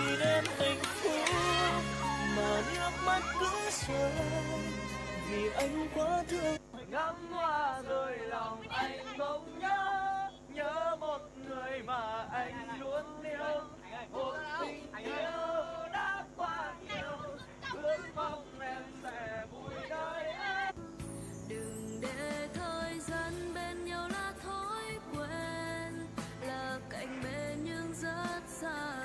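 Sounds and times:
soft backing track: 0.0 - 6.6, 20.8 - 29.0
person singing with wavering pitch: 0.0 - 20.1.

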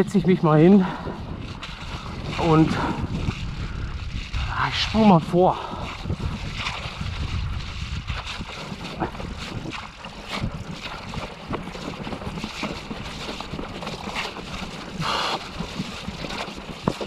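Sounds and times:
wind buffeting microphone: 0.0 - 17.0
tyres rolling over rough ground: 6.0 - 17.0.

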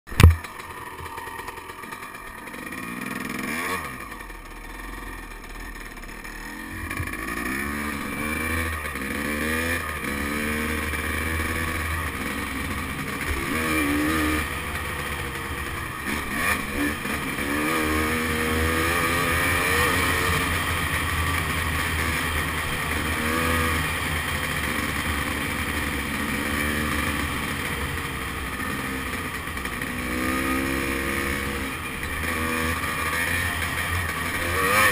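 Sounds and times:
dirt bike engine revving: 0.2 - 34.9.

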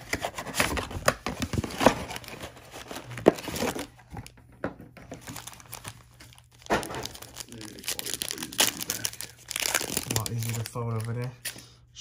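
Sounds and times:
packaging rustling: 0.1 - 4.3, 5.0 - 11.6
packaging being torn open: 5.2 - 11.5.

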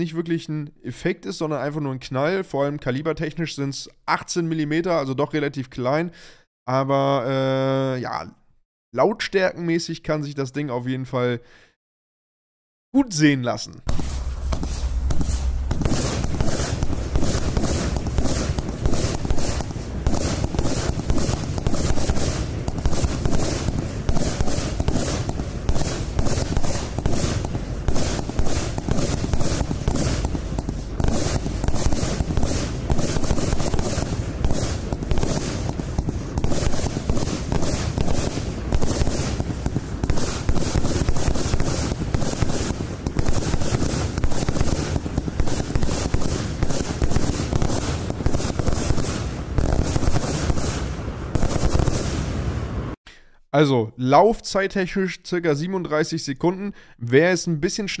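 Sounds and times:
rapid firework bangs: 13.9 - 53.0.

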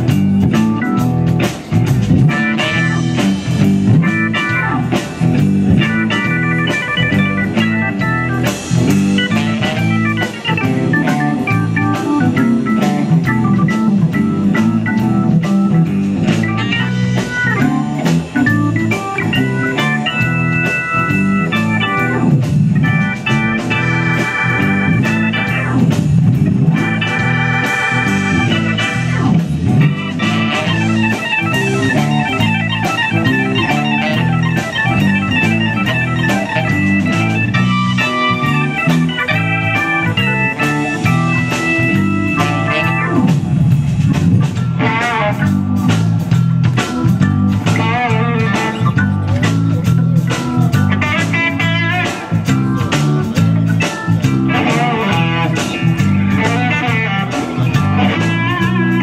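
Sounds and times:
instrumental music with steady beat: 0.0 - 59.0.

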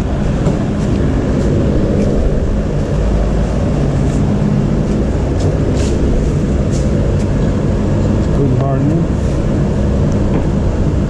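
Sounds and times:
low machine drone: 0.0 - 11.0.

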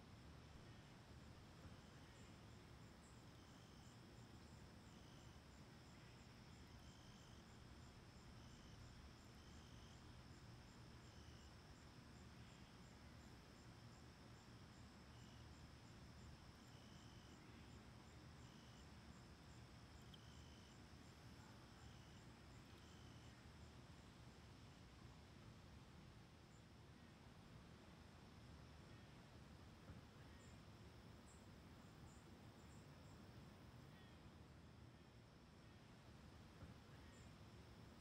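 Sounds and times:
low hiss: 0.0 - 38.0
crickets buzzing: 1.8 - 23.8, 30.2 - 34.2
short insect chirps: 16.2 - 23.4.

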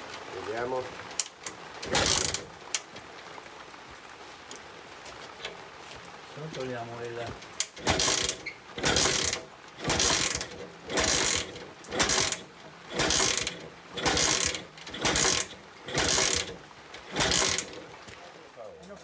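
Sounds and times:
metal tool scraping metal tank: 7.8 - 17.8.

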